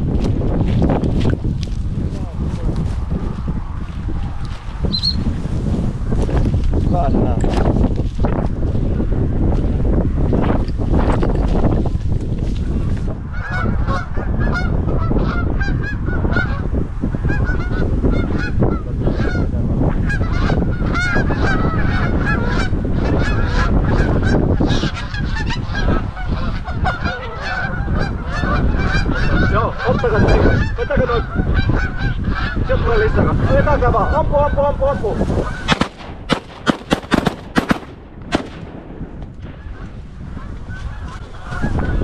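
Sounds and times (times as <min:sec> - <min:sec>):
wind noise on microphone: 0:00.0 - 0:42.0
geese honking: 0:13.3 - 0:16.7, 0:17.3 - 0:35.9, 0:39.6 - 0:42.0.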